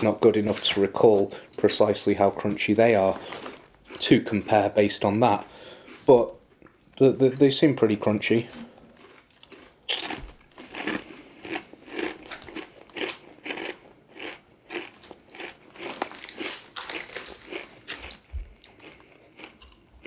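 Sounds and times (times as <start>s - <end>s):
crisps being chewed: 3.0s - 6.9s, 8.8s - 20.0s.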